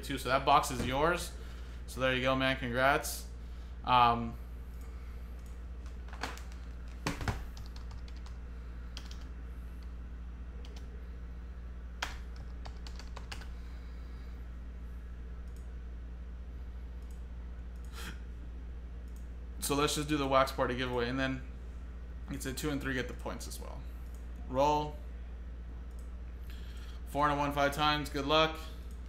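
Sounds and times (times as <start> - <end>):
low hum: 0.0 - 29.0
computer keyboard keystrokes: 5.4 - 8.4, 9.0 - 9.3, 12.0 - 13.5.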